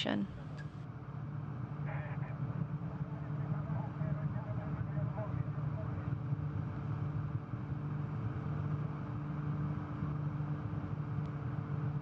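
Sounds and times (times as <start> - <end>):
faint steady tones: 0.0 - 9.1
steady low hum: 0.0 - 12.0.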